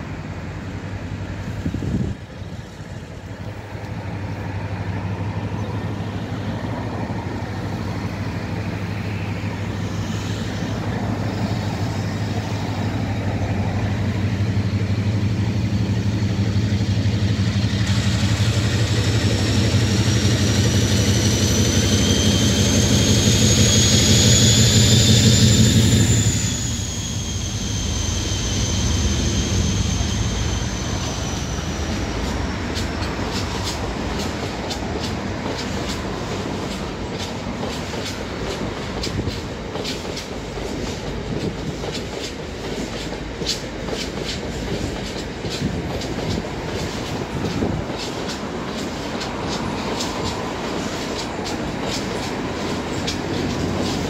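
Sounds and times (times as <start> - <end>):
diesel locomotive engine drone: 0.0 - 54.0
high turbocharger whistle: 18.0 - 32.4.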